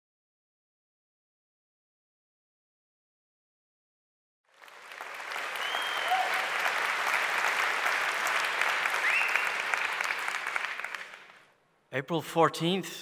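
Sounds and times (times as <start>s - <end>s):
audience applauding in a hall: 4.5s - 11.5s.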